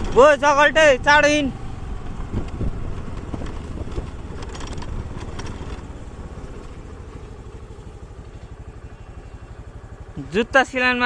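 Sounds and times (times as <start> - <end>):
motorbike engine rumble: 0.0 - 11.0
stones clicking under tyres: 1.9 - 8.6.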